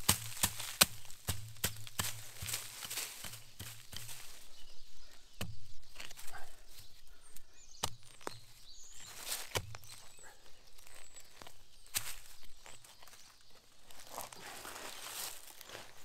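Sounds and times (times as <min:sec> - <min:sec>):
twigs and dry leaves crackling: 0:00.0 - 0:16.0
faint bird chirps: 0:02.5 - 0:15.4.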